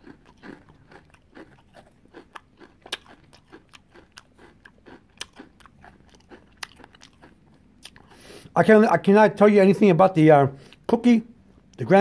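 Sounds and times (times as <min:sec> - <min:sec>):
person chewing crunchy food: 0:00.0 - 0:08.6
wet mouth clicks: 0:00.4 - 0:08.2.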